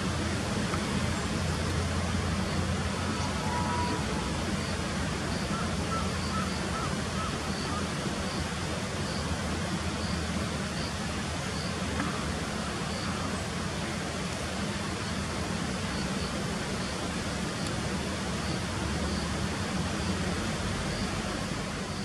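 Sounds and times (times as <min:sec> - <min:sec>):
distant traffic rumble: 0:00.0 - 0:22.0
faint high insect chirp: 0:01.6 - 0:13.9, 0:14.6 - 0:22.0
faint bird calls: 0:02.5 - 0:09.2.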